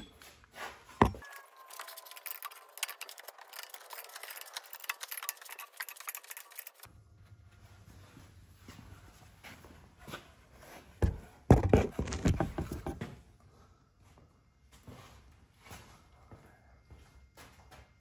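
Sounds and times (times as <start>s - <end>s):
metallic clicking and clinking: 1.0s - 6.9s.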